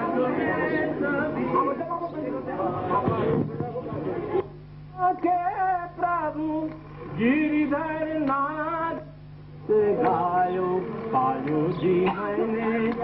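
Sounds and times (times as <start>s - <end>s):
person singing slowly: 4.9s - 13.0s.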